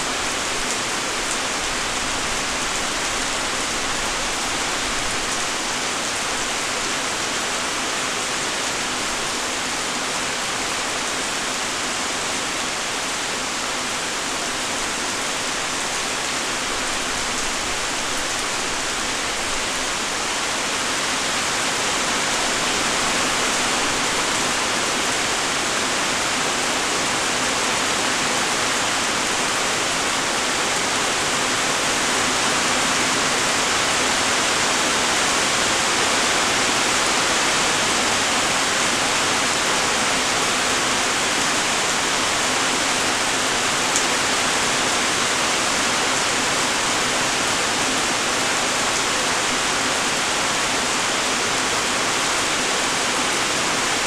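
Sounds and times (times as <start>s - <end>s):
light rain falling: 0.0s - 54.0s.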